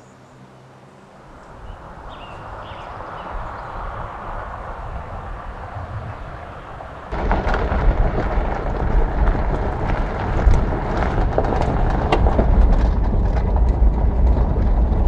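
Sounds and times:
truck engine and road rumble: 0:00.0 - 0:15.0
tyres crunching over gravel: 0:01.4 - 0:15.0
small stones ticking: 0:07.1 - 0:15.0.

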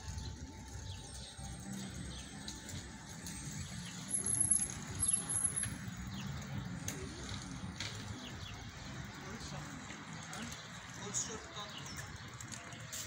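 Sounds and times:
distant traffic hum: 0:00.0 - 0:13.0
small birds chirping: 0:00.0 - 0:13.0.

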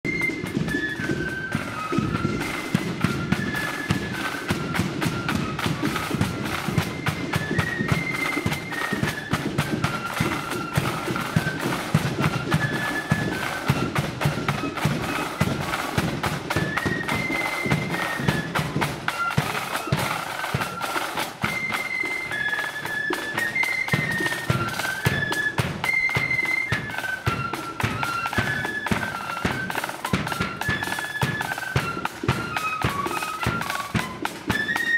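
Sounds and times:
flute band playing: 0:00.0 - 0:34.9
side drums: 0:00.0 - 0:34.9.

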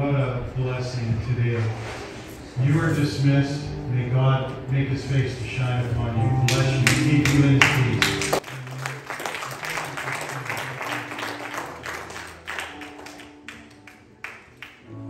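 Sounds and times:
quiet music: 0:02.5 - 0:15.0
congregation applauding: 0:06.4 - 0:15.0.

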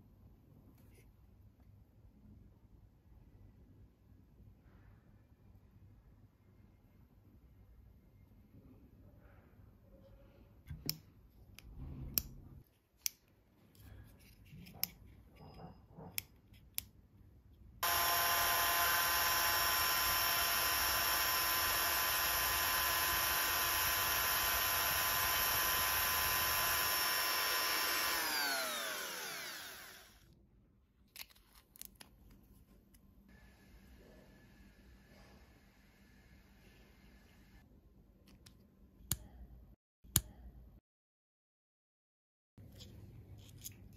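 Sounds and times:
rotary tool whining: 0:17.8 - 0:30.3.

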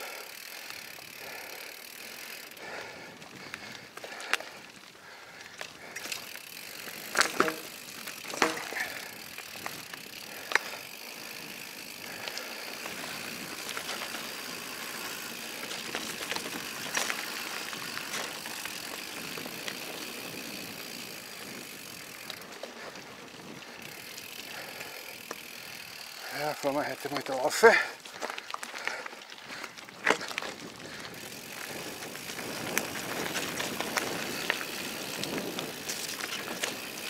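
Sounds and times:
bike knocking and rattling: 0:00.0 - 0:37.0
tyres rolling on dirt: 0:00.0 - 0:37.0
wind noise: 0:29.5 - 0:37.0.

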